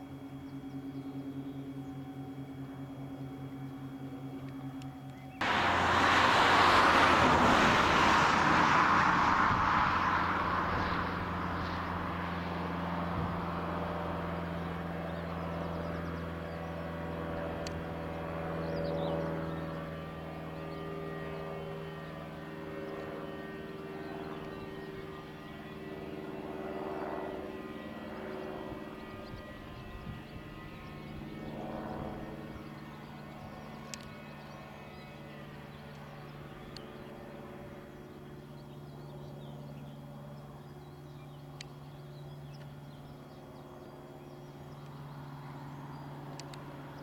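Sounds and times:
distant jet engines humming: 0.1 - 47.0
loud rushing noise: 5.4 - 12.0.

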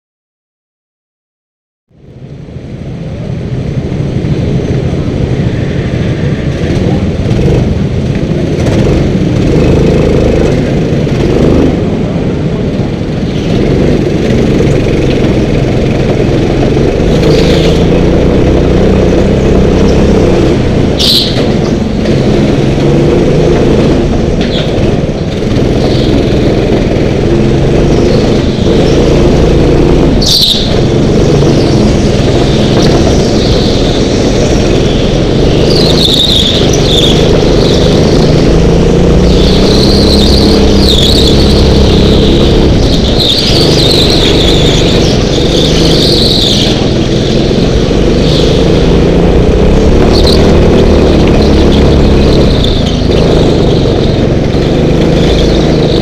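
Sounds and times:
go-kart engines revving: 2.5 - 56.0
tyre squeals: 28.0 - 38.4, 39.1 - 49.1.

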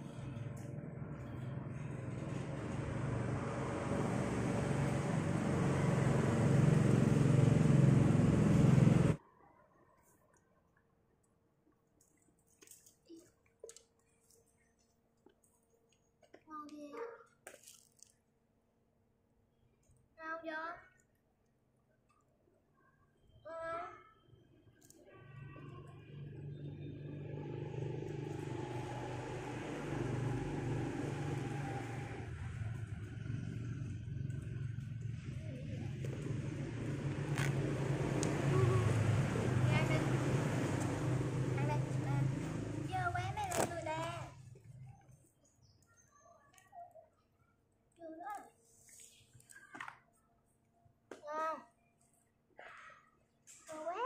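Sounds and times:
vehicle engine rumbling: 0.0 - 9.2, 25.1 - 45.4.

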